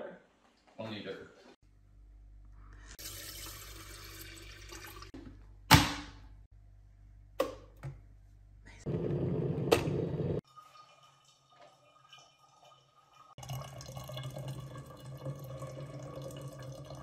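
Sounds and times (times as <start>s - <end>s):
water pouring into kettle: 3.0s - 5.2s, 10.4s - 17.0s.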